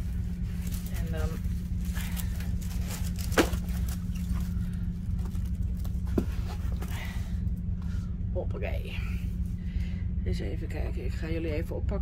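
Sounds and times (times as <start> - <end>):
plastic rustling and crinkling: 0.0 - 7.1
steady low hum: 0.0 - 12.0.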